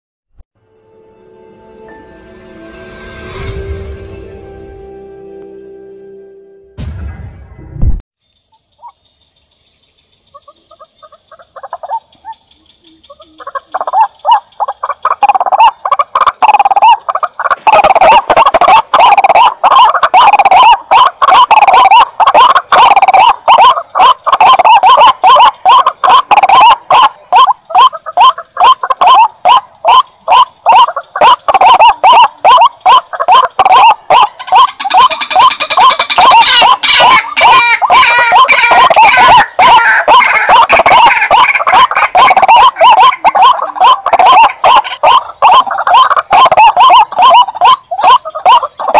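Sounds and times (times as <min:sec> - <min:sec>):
bird harsh calls: 0:10.2 - 0:48.9.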